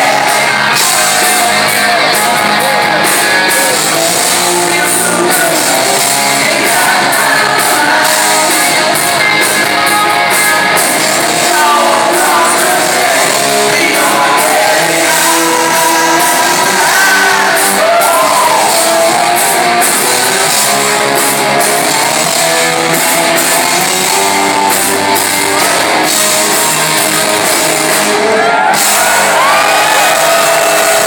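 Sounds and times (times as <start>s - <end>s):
man singing lead vocal: 0.0s - 19.1s
drums: 0.0s - 31.0s
electric guitar: 0.0s - 31.0s.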